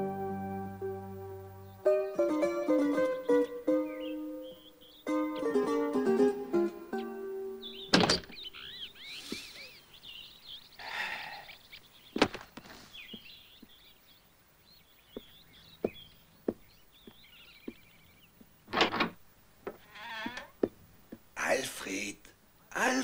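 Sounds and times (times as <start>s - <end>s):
small birds chirping: 1.2s - 23.0s.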